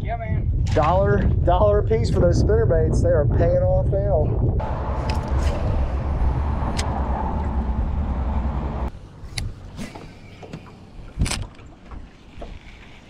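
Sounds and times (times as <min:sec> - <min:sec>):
low rumble: 0:00.4 - 0:09.7.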